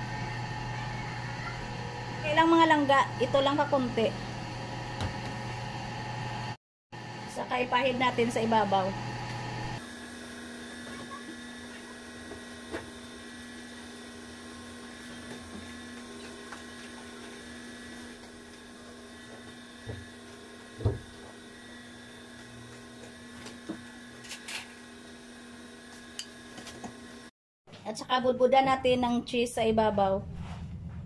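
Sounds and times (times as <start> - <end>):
steady machine hum: 0.0 - 27.3.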